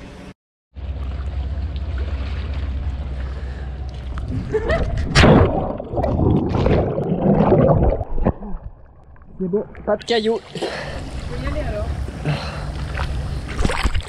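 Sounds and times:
low rumble: 0.8s - 10.0s
water splashing and sloshing: 0.8s - 14.0s.

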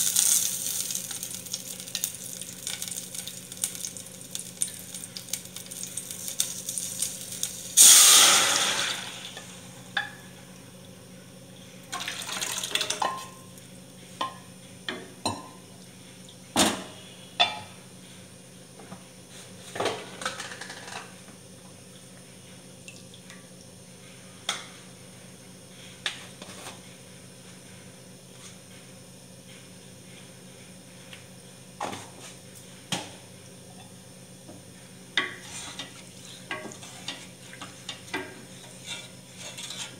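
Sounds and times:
liquid poured into hot oil hissing: 0.0s - 9.7s, 11.9s - 13.1s.

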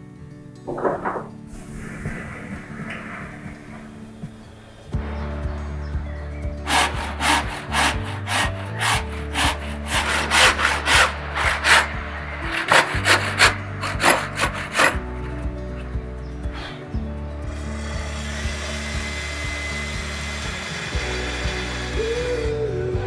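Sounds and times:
hand saw cutting wood: 6.7s - 15.1s.

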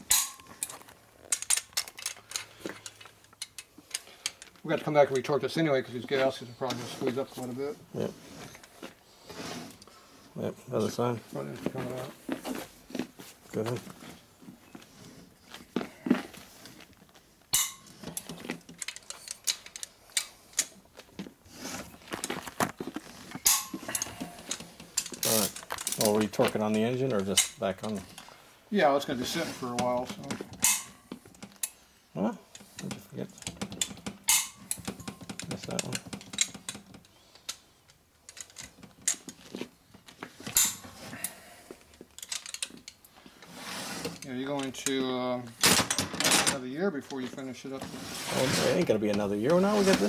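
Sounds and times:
hand tools clinking on metal: 0.0s - 7.6s, 17.5s - 20.9s, 23.3s - 28.4s, 29.6s - 31.8s, 32.5s - 36.8s, 40.4s - 43.4s.

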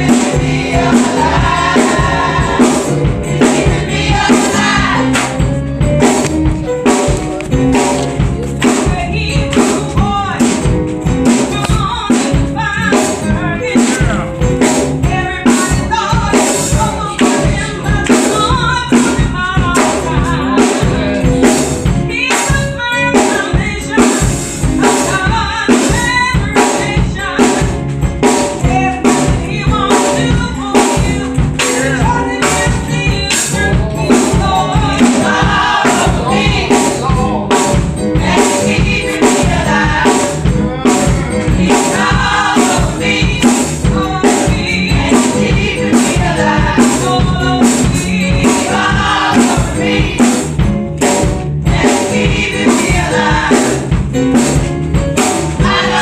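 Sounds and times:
voices singing together: 0.0s - 5.4s, 15.8s - 21.6s, 30.8s - 50.5s, 51.7s - 54.0s, 55.4s - 56.0s
drum kit steady beat: 0.0s - 56.0s.

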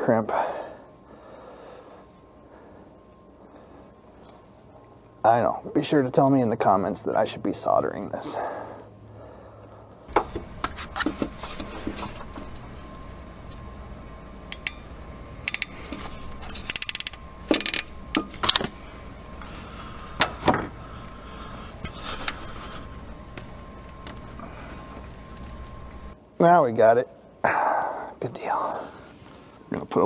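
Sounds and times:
crimper ratchet clicks: 14.5s - 18.7s.

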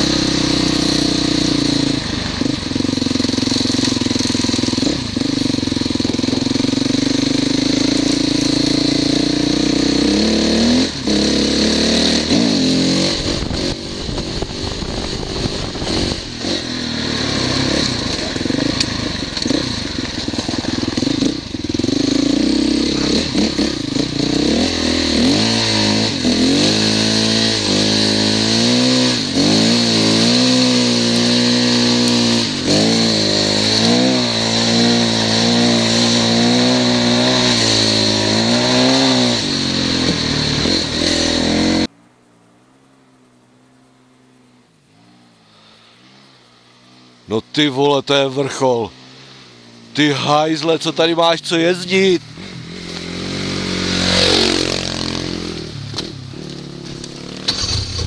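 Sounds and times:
motorcycle engine revving: 0.0s - 58.0s
steady high hiss: 39.5s - 58.0s.

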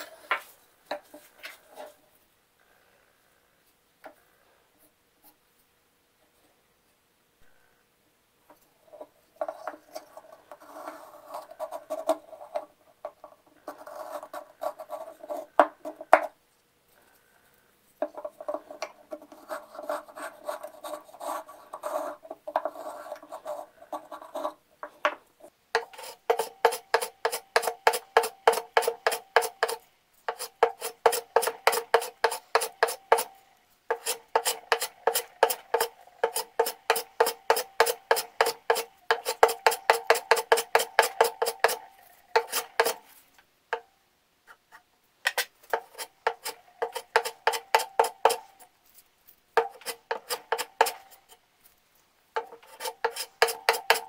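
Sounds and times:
wooden plane rasping strokes: 25.8s - 33.3s, 33.9s - 43.2s, 45.3s - 48.6s, 49.6s - 51.3s, 52.4s - 54.0s
metal plane crisp strokes: 25.8s - 43.2s, 44.7s - 49.0s, 49.6s - 51.4s, 52.4s - 54.0s.

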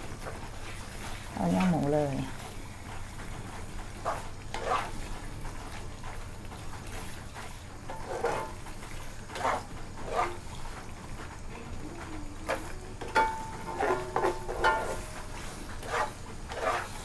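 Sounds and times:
spatula scraping a wok: 2.3s - 5.9s, 6.5s - 11.0s, 12.4s - 17.0s.

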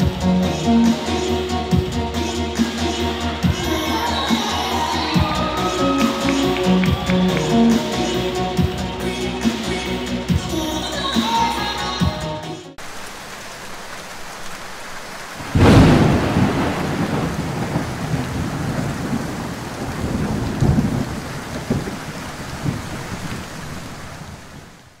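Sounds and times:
steady rain: 0.0s - 11.8s, 12.7s - 25.0s
thunder rumbling: 15.4s - 25.0s.

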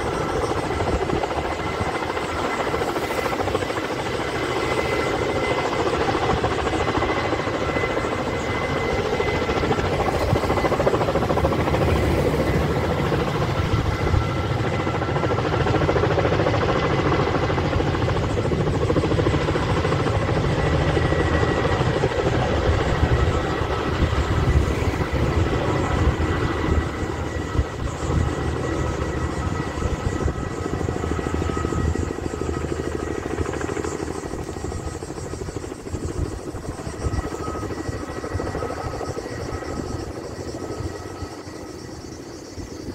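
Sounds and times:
helicopter rotor beat: 0.0s - 42.9s
high turbine whine: 0.0s - 42.9s.

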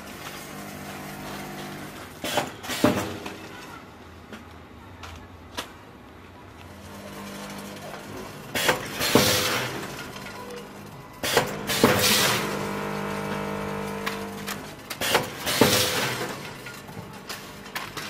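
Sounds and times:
steady machine hum: 6.7s - 18.0s.

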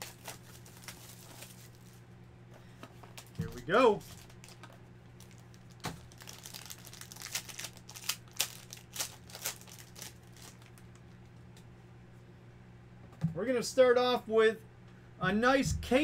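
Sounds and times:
foil pack crinkling and tearing: 0.0s - 2.0s, 3.1s - 11.3s.

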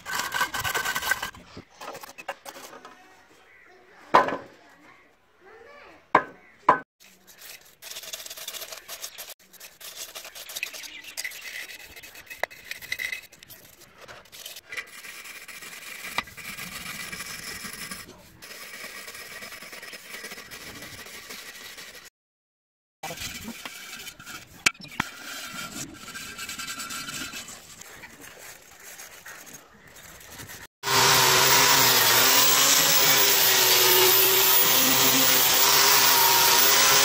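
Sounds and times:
hand scraper rasping on sheet metal: 0.0s - 1.3s, 30.8s - 37.0s.

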